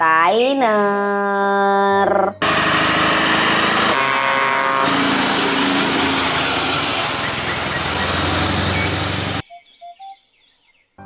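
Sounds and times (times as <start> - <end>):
truck diesel engine passing: 2.4 - 9.4.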